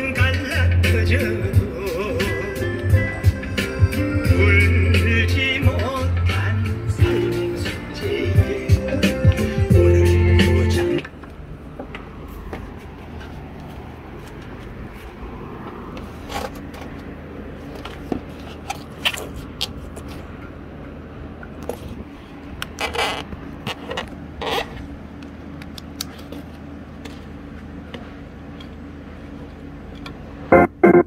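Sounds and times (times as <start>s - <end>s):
music through speakers: 0.0s - 11.0s
steady low hum: 23.4s - 31.0s.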